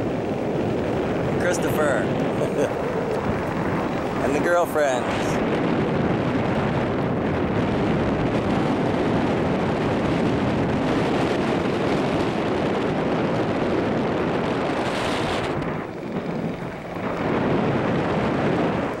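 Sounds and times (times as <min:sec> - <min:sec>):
wind noise on microphone: 0:00.0 - 0:19.0.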